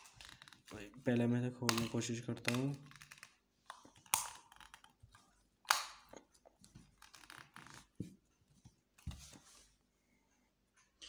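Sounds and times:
plastic casing clicks and snaps: 1.7s - 4.9s, 5.6s - 6.2s.

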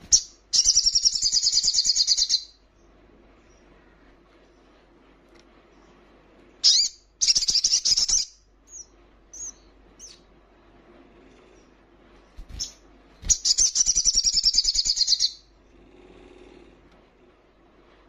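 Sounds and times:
sunbird calling and twittering: 0.0s - 3.8s, 6.6s - 10.3s, 12.4s - 15.5s.

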